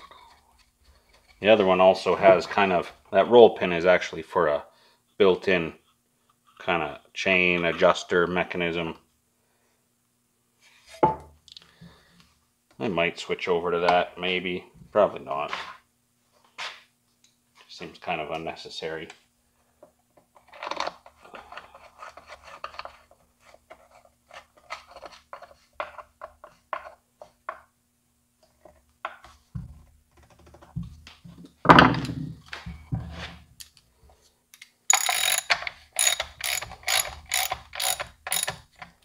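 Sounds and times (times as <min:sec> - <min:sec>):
ratchet clicks: 0:34.9 - 0:38.6.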